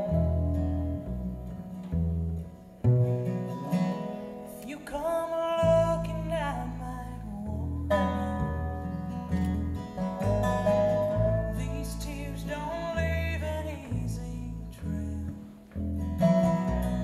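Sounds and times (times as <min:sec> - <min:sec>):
plucked upright bass: 0:00.0 - 0:04.3, 0:05.0 - 0:17.0
acoustic guitar: 0:00.0 - 0:17.0
resonator guitar: 0:00.0 - 0:17.0
woman singing: 0:04.6 - 0:08.8.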